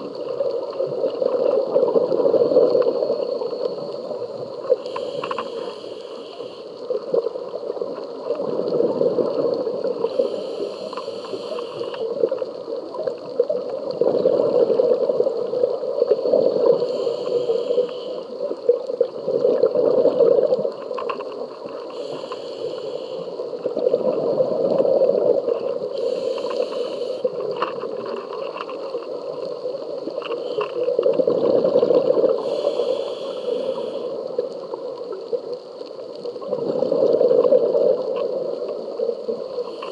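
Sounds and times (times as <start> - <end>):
regulator inhale hiss: 2.6 - 7.0, 9.8 - 12.4, 16.6 - 18.5, 21.7 - 23.6, 25.8 - 27.5, 29.9 - 31.2, 32.1 - 34.7, 39.0 - 39.9
exhale bubbling underwater: 6.9 - 20.9, 21.5 - 28.2, 30.0 - 35.5, 36.3 - 39.9.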